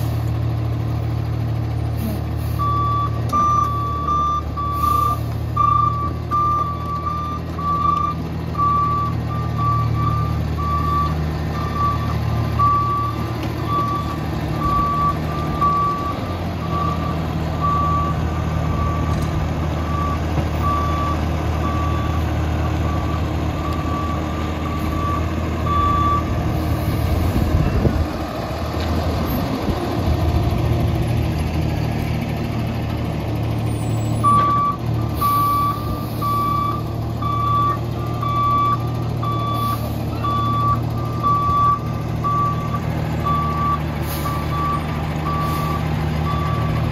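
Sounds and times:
truck engine running: 0.0 - 46.9
reversing alarm beeps: 2.6 - 19.2, 19.9 - 22.3, 22.9 - 26.3, 34.2 - 46.8.

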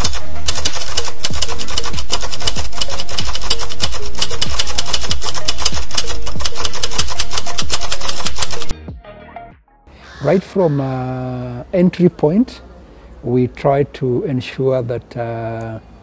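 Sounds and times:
harsh rasping clicks: 0.0 - 8.7.

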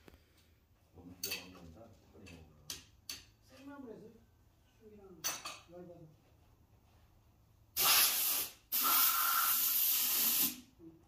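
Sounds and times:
loud hissing bursts: 7.8 - 10.7.

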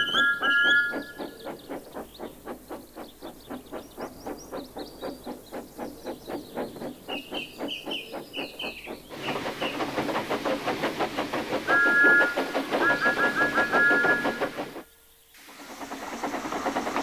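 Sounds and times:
two-tone train whistle: 0.0 - 1.3, 11.6 - 14.8
steam engine chuffing: 0.0 - 17.0.

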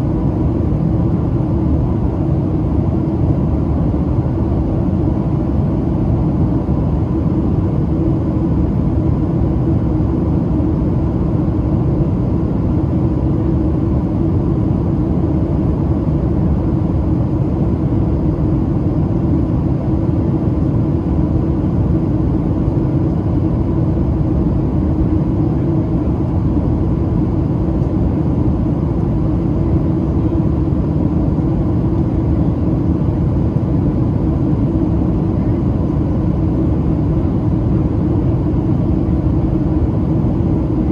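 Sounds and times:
airliner cabin rumble: 0.0 - 40.9
faint steady hum: 0.0 - 40.9.

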